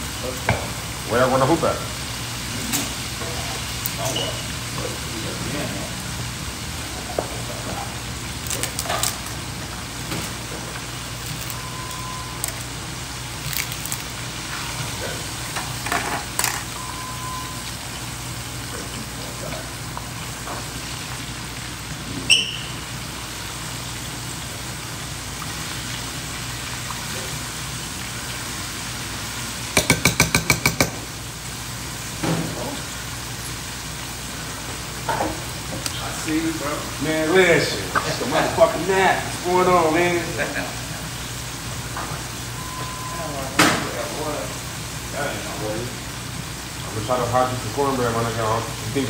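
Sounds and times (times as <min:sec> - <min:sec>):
oil frying sizzle: 0:00.0 - 0:49.0
dishes and utensils clinking: 0:15.6 - 0:16.8.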